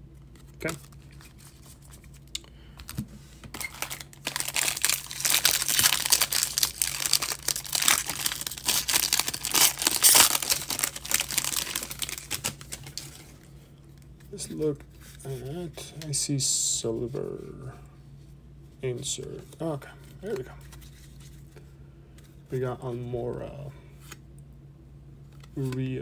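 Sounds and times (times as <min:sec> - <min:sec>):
foil wrapper tearing and crinkling: 0:03.5 - 0:13.2.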